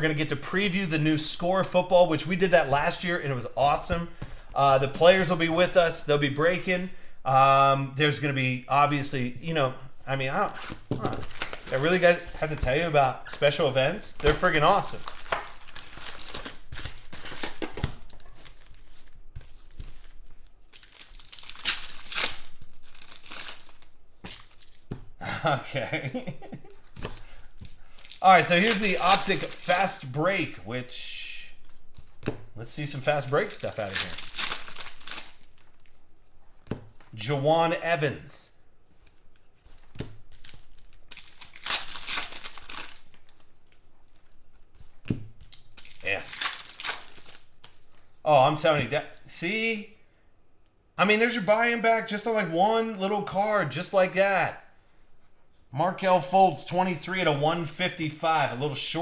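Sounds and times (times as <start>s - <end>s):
foil packs crinkling: 10.6s - 24.9s, 26.9s - 30.1s, 32.8s - 36.0s, 40.3s - 44.3s, 45.5s - 48.0s
foil pack tearing: 20.8s - 24.8s, 28.0s - 30.0s, 33.1s - 35.6s, 40.4s - 43.3s.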